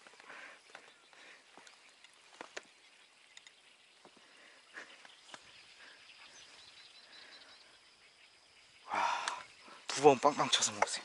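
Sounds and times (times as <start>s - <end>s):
soft clicks and knocks: 1.6s - 4.2s.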